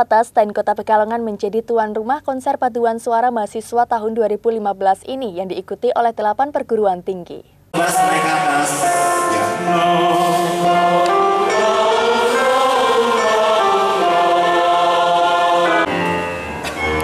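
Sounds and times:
choir singing sustained chords: 7.8 - 17.0.

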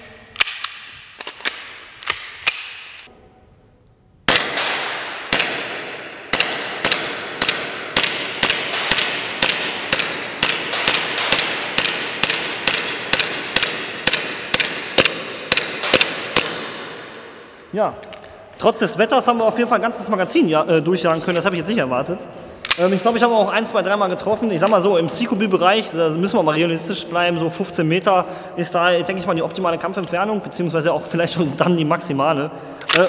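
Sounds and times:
airsoft pistol shots echoing: 4.3 - 17.4.

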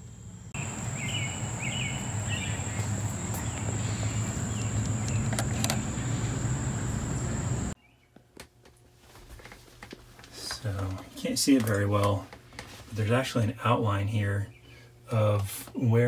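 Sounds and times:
high-pitched insect trill: 0.6 - 7.8.

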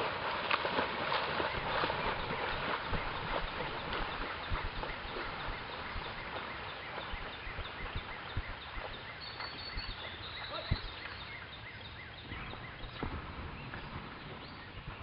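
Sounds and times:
canoe paddles pulling through water: 0.0 - 15.0
faint high chirp: 4.9 - 13.0.

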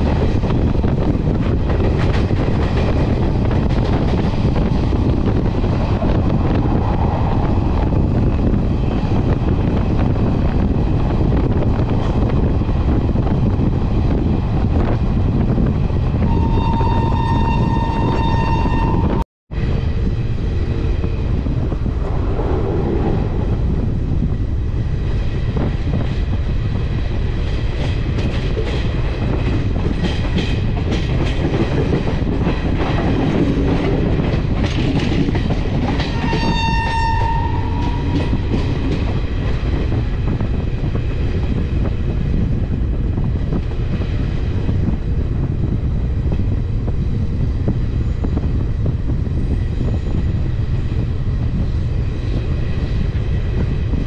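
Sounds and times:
train wheels rumbling on track: 0.0 - 54.0
train horn blast: 16.3 - 19.2, 36.1 - 38.5.

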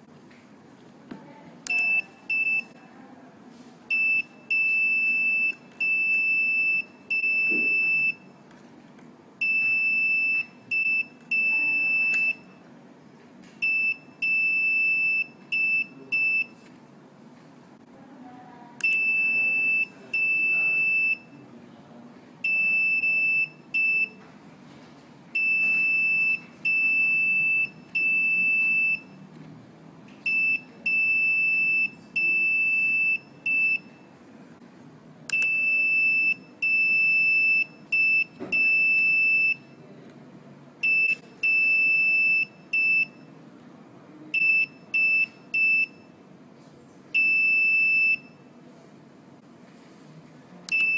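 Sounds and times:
electronic buzzer beeping morse code: 3.9 - 8.3, 18.8 - 21.3, 22.5 - 24.2, 30.3 - 33.9.

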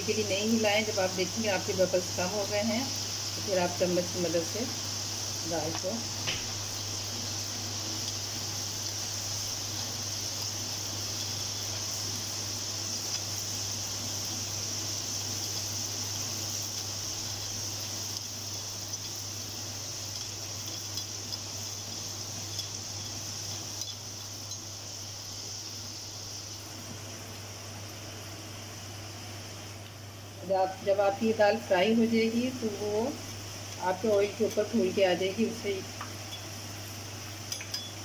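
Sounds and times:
lentils sizzling in hot oil: 0.0 - 38.0
metal spoon clinking on skimmer: 37.5 - 38.0.

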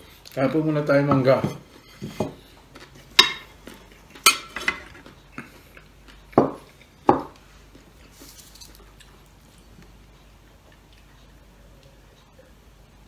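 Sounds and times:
ceramic plates and cutlery clinking: 4.2 - 5.0.

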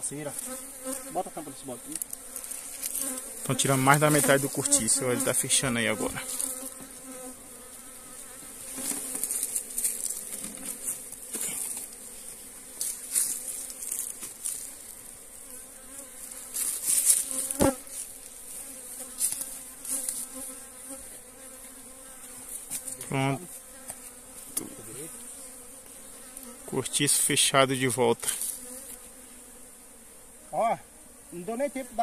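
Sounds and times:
bees buzzing: 0.0 - 32.0
rustles: 1.8 - 4.8, 6.0 - 24.6, 28.2 - 29.2.

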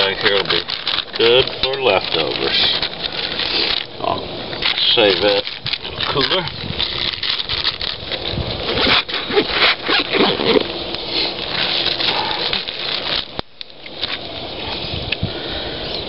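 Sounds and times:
plastic bag rustling: 0.0 - 15.1
zipper being pulled shut: 8.7 - 11.4.

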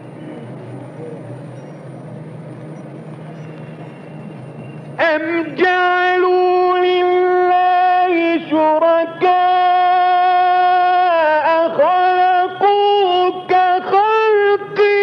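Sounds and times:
man reciting melodically: 5.0 - 15.0.

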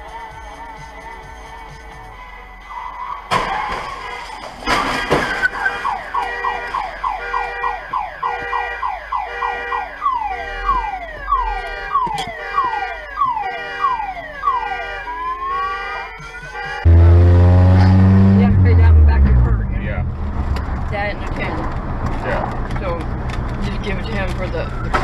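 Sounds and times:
metal crash of cars colliding: 3.3 - 6.1
car alarm chirping: 5.4 - 17.1.

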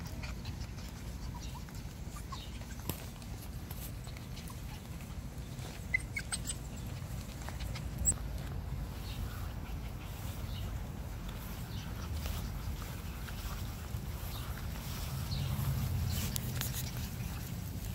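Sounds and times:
puppies squeaking: 0.0 - 8.2.

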